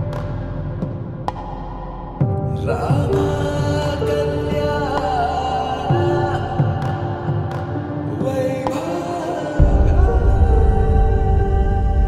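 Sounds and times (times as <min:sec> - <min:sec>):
sustained background music tones: 0:00.0 - 0:12.0
deep bass: 0:09.6 - 0:12.0.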